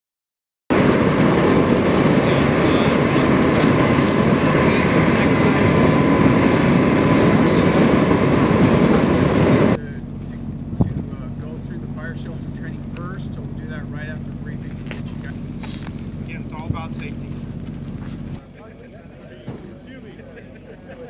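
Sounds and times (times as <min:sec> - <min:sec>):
faint turbine whine: 0:00.7 - 0:21.0
helicopter engine rumble: 0:00.7 - 0:21.0.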